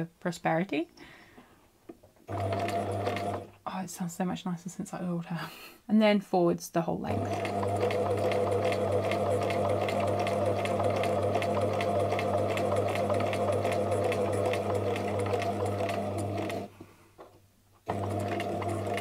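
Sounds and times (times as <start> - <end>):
sewing machine motor hum: 2.3 - 3.5, 7.1 - 16.7, 17.8 - 19.0
sewing needle clatter: 7.2 - 19.0.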